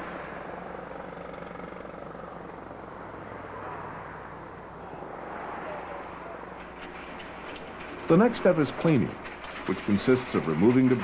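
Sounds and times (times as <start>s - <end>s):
engines and vehicle traffic drone: 0.0s - 11.0s.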